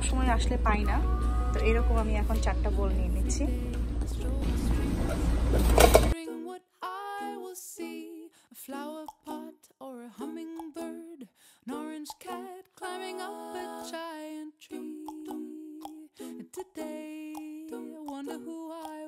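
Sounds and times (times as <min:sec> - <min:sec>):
loud store noise: 0:04.4 - 0:06.2
bowls clattering into wire cart: 0:05.6 - 0:06.2.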